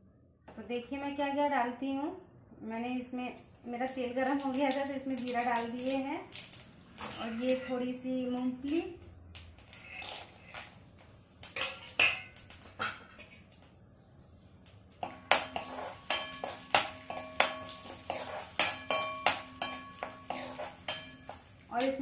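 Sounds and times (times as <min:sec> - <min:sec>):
metal spoon clinking in steel bowl: 0:11.6 - 0:13.4, 0:15.0 - 0:22.0.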